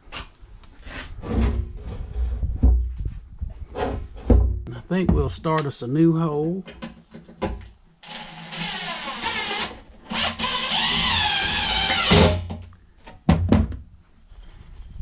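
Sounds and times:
cordless drill driving screws: 8.0s - 12.4s.

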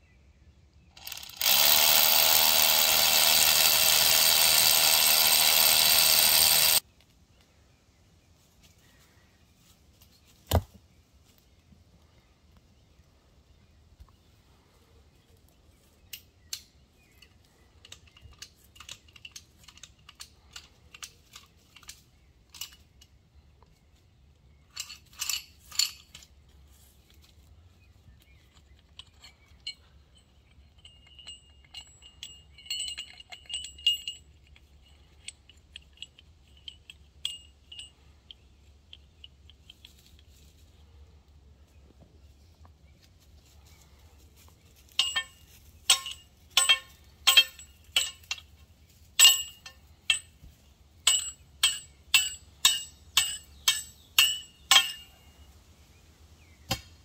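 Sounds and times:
winch ratchet clicks: 1.0s - 6.8s
ringing metal clinks: 28.5s - 38.5s, 44.9s - 48.5s, 49.2s - 50.4s, 51.0s - 55.4s.

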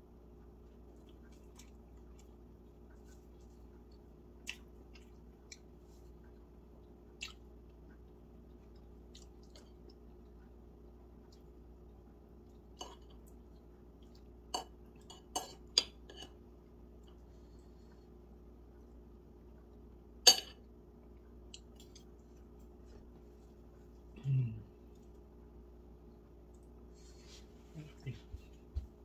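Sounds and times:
faint room hum: 0.0s - 29.0s
chewing and mouth noises: 0.7s - 10.6s, 21.1s - 22.7s
tableware clinking: 14.6s - 16.4s, 20.3s - 20.6s.

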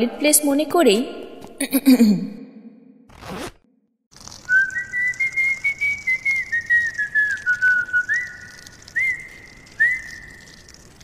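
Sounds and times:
person whistling a tune: 4.5s - 10.5s.

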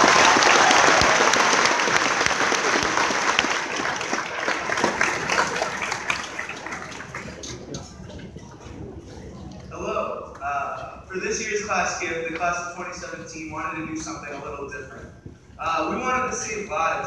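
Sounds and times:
large audience applauding: 0.0s - 7.8s.

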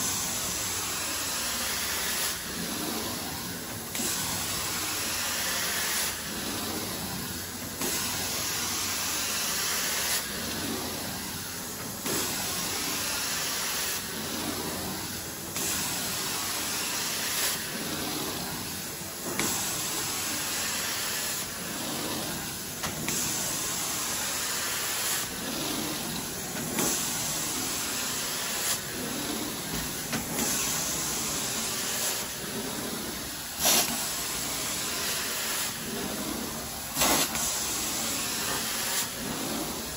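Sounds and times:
carpet cleaner suction hiss: 0.0s - 39.9s
spray hiss: 0.0s - 39.9s.

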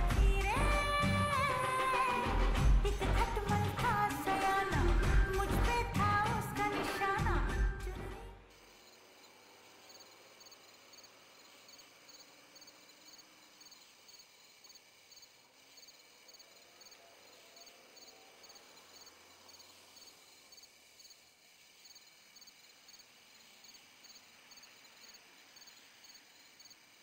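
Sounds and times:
faint cricket chirping: 8.5s - 27.0s.

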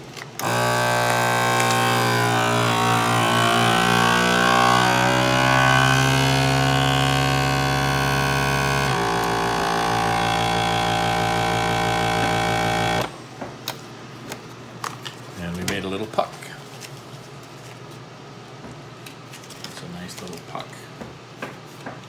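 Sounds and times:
vacuum sealer pump humming: 0.0s - 13.3s.

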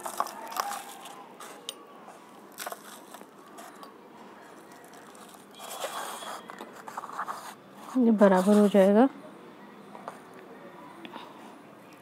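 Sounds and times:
potting mix rustling and crunching: 0.0s - 9.1s.

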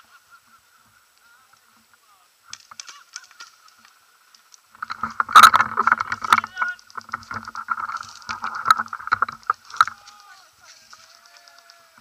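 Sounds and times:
scrapes and knocks on camera: 4.8s - 10.0s.

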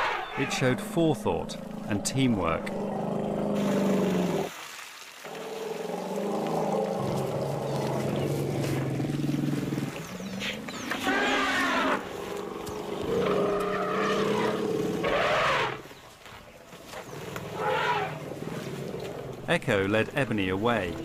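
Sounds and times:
elephants roaring and trumpeting: 0.0s - 4.5s, 5.3s - 15.8s, 16.8s - 19.5s
elephants rumbling calls: 5.3s - 15.8s, 17.0s - 19.4s.

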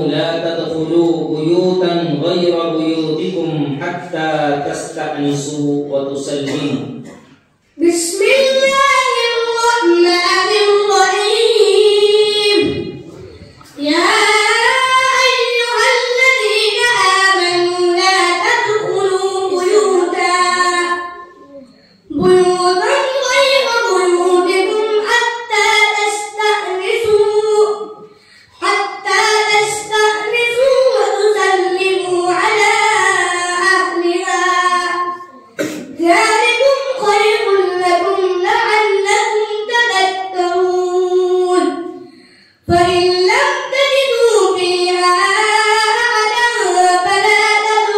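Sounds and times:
boy chanting into a microphone: 0.0s - 47.9s
breaths: 13.0s - 13.8s, 21.5s - 22.1s, 28.0s - 28.6s, 42.0s - 42.7s.

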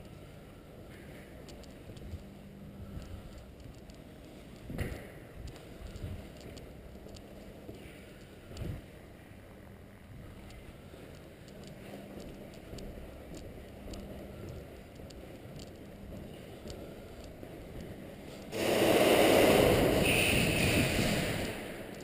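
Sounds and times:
light footsteps: 0.0s - 9.2s, 10.0s - 18.6s
gear ticking: 1.4s - 7.4s, 10.4s - 18.6s, 19.7s - 22.0s
loud rushing noise: 18.5s - 21.8s.

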